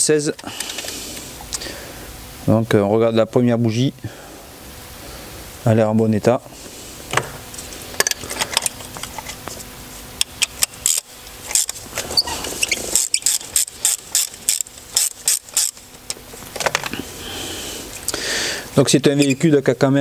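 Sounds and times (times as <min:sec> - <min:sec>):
ratchet clicking: 0:10.2 - 0:11.8, 0:12.6 - 0:15.9.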